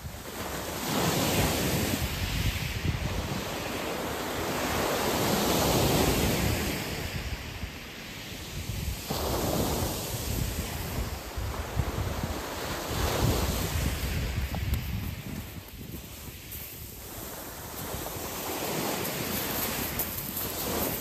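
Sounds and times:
wind on microphone: 0:00.0 - 0:21.0
waves washing up shingle: 0:08.5 - 0:21.0.

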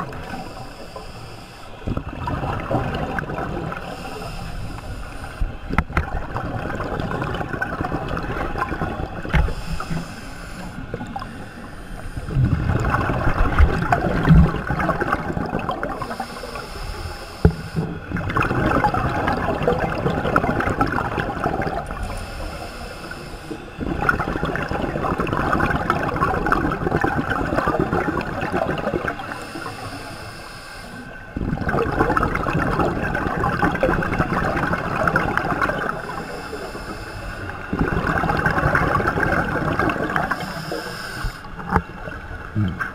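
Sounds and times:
regulator hissing inhale: 0:00.2 - 0:01.9, 0:03.8 - 0:05.8, 0:09.3 - 0:12.8, 0:16.0 - 0:17.9, 0:21.8 - 0:23.8, 0:29.2 - 0:31.3, 0:35.8 - 0:37.7, 0:40.0 - 0:41.6
burble of exhaled bubbles: 0:01.8 - 0:04.0, 0:05.6 - 0:10.0, 0:12.2 - 0:16.2, 0:17.5 - 0:22.1, 0:23.8 - 0:29.4, 0:31.3 - 0:36.4, 0:37.4 - 0:40.6, 0:41.5 - 0:42.9.

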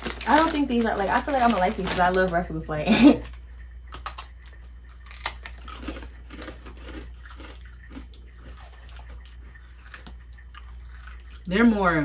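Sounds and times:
potato chips crunching: 0:00.0 - 0:12.0
chewing: 0:03.2 - 0:12.0.

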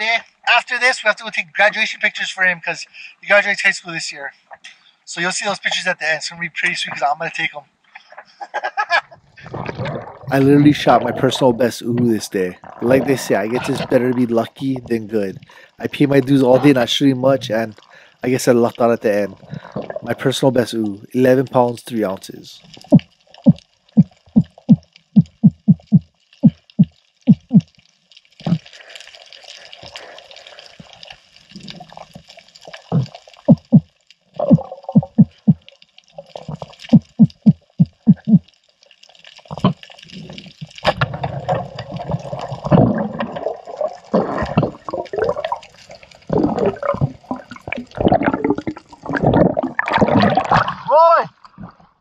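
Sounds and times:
rush of water and bubbles: 0:09.3 - 0:52.0
low underwater thumps: 0:22.8 - 0:27.7, 0:33.0 - 0:35.7, 0:36.8 - 0:38.5, 0:46.3 - 0:50.8.

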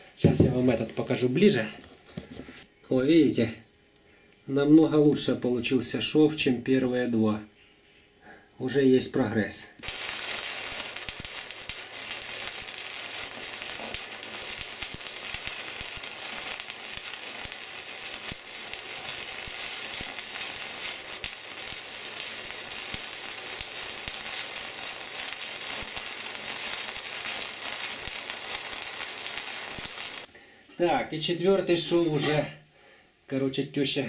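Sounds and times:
welding arc crackling and sizzling: 0:09.8 - 0:30.3.

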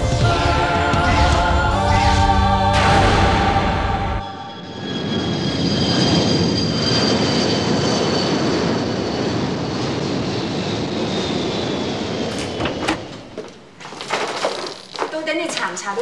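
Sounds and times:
jet airliner passing overhead: 0:02.7 - 0:13.8.

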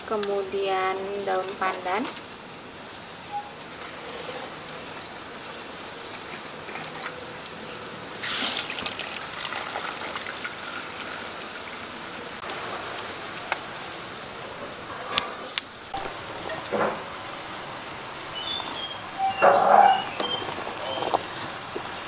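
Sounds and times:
water pouring into metal pan: 0:08.2 - 0:12.3.

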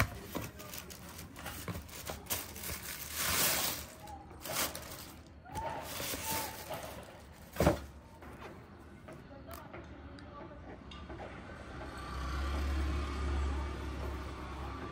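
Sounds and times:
tissue paper rustling: 0:00.0 - 0:07.9.

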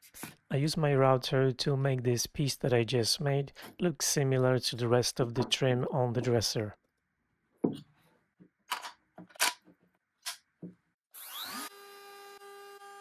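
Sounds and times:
tool handling clicks and knocks: 0:07.6 - 0:10.8
router motor whine: 0:11.2 - 0:13.0.

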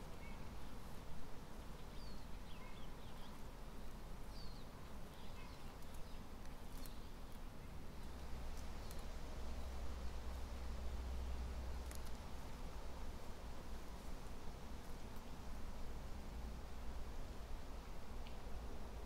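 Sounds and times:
low background noise: 0:00.0 - 0:19.0
faint clicks: 0:18.2 - 0:18.5.

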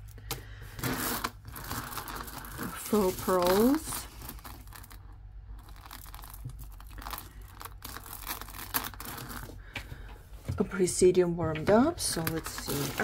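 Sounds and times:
beads clicking and rattling: 0:00.8 - 0:09.5.

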